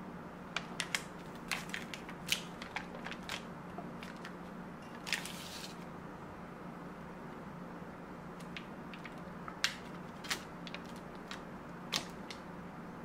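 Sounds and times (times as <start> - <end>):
foil wrapper crinkling: 0.6 - 4.4, 5.0 - 5.8, 8.4 - 12.4.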